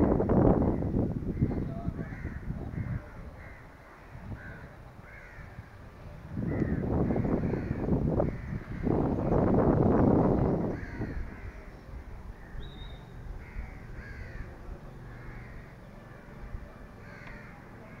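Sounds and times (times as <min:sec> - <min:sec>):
crows cawing: 0:00.6 - 0:05.7, 0:06.4 - 0:09.1, 0:10.5 - 0:11.8, 0:13.4 - 0:18.0.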